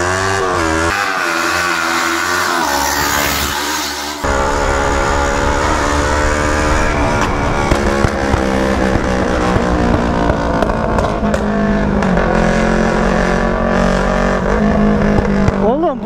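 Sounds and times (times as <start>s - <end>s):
unmuffled motorcycle engine: 0.0s - 16.0s
exhaust pops: 6.6s - 12.4s, 14.0s - 15.8s.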